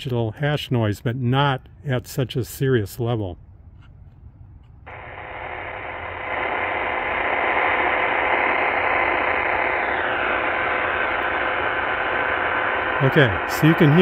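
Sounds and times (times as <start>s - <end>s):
faint whine tones: 0.0s - 14.0s
radio static hiss: 4.9s - 14.0s.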